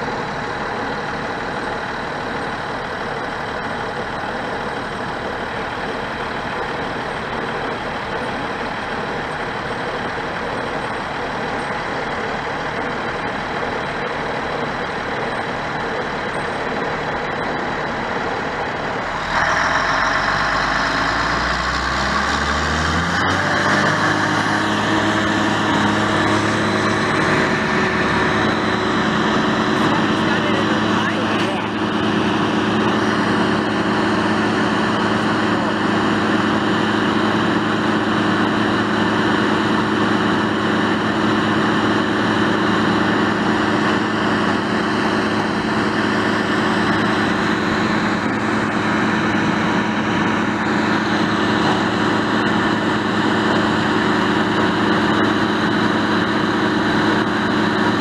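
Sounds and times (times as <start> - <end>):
heavy diesel engines running: 0.0 - 58.0
engine revving up: 19.0 - 58.0.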